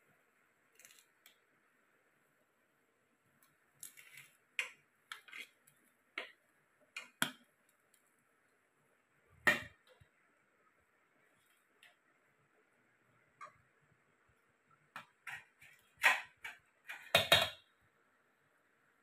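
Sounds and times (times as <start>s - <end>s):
spoon scraping inside a pot: 3.8s - 5.8s, 15.2s - 17.3s.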